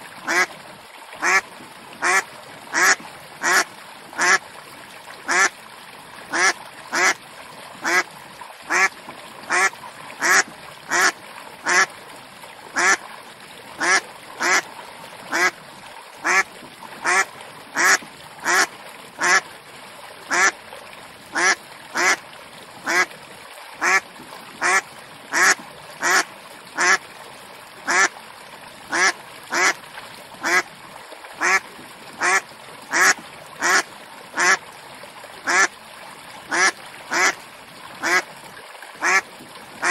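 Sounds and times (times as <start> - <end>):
duck quacking: 0.3 - 0.5, 1.2 - 1.4, 2.0 - 3.6, 4.2 - 4.4, 5.3 - 5.5, 6.3 - 7.2, 7.8 - 8.0, 8.7 - 8.9, 9.5 - 11.9, 12.8 - 13.0, 13.8 - 14.6, 15.3 - 15.5, 16.2 - 16.4, 17.0 - 17.2, 17.8 - 19.4, 20.3 - 20.5, 21.4 - 22.2, 22.9 - 23.1, 24.6 - 26.2, 26.8 - 27.0, 27.9 - 28.1, 28.9 - 29.8, 30.4 - 30.6, 31.4 - 31.6, 32.2 - 33.8, 34.4 - 34.6, 35.5 - 35.7, 36.5 - 37.4, 38.0 - 38.2, 39.0 - 39.2.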